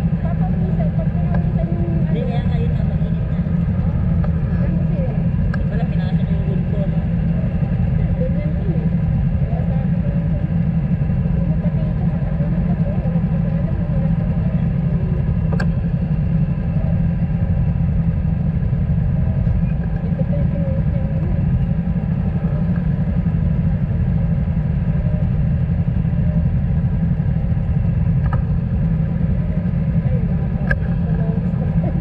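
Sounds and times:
motorcycle engines idling: 0.0s - 32.0s.

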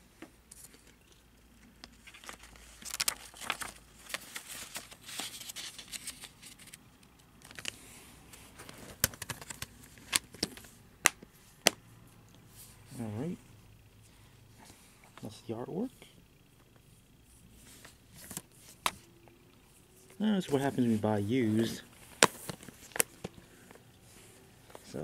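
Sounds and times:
paper crinkling against plastic: 1.8s - 6.8s, 7.4s - 7.8s, 8.4s - 10.7s.

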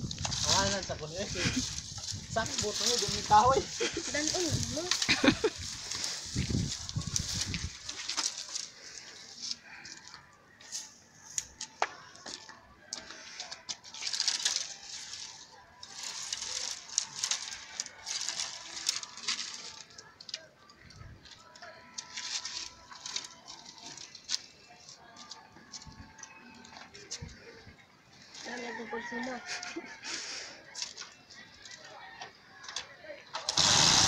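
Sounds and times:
branches rustling and scraping: 0.0s - 12.3s, 13.2s - 30.0s
dry wood snapping: 14.0s - 14.8s.

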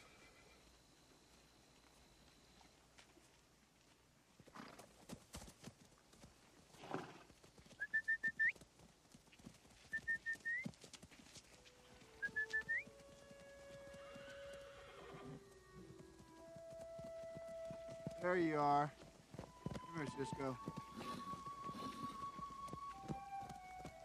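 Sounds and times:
horses moving on grass: 0.0s - 24.0s
man whistling: 7.8s - 8.5s, 9.9s - 10.7s, 12.2s - 12.9s.

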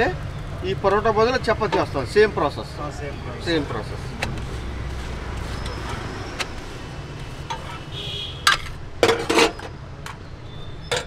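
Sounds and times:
steel utensils clinking: 4.2s - 10.2s
metal spatula scraping iron griddle: 4.3s - 9.7s.

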